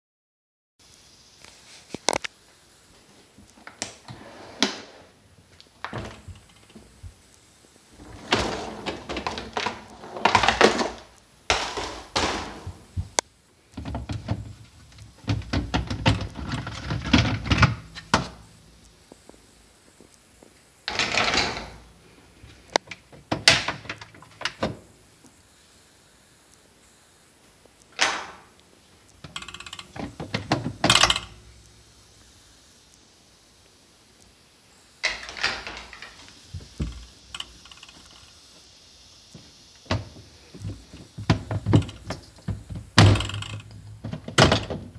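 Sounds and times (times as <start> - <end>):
dishwasher door opening: 5.8 - 6.9, 8.0 - 11.0, 15.2 - 18.4, 20.9 - 21.8, 29.3 - 31.4, 35.0 - 37.1, 39.9 - 44.9
plastic parts clunking and clicking: 8.2 - 18.4, 20.9 - 21.9, 22.5 - 24.9, 29.2 - 31.5, 35.0 - 38.3, 39.9 - 44.9.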